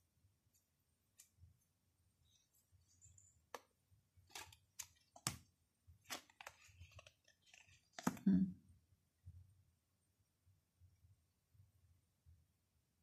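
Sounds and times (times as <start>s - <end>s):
cards clicking and tapping: 3.4s - 8.2s.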